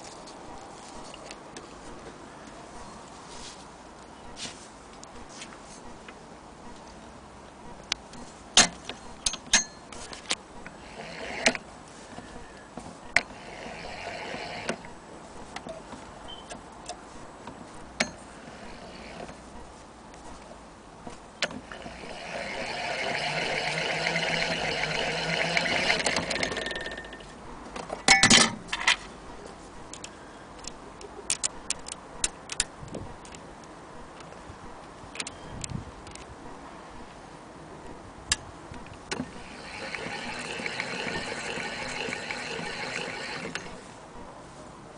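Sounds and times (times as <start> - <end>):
sewing machine whirring: 10.6 - 15.0, 21.5 - 27.3, 39.1 - 43.8.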